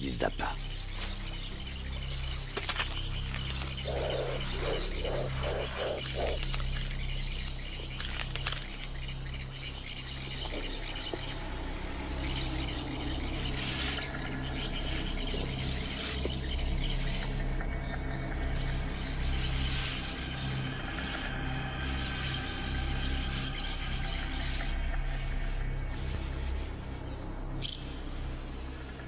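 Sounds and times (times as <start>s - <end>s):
frogs and insects calling: 0.0s - 29.0s
steady low hum: 0.6s - 29.0s
low frog croaks: 3.6s - 6.8s.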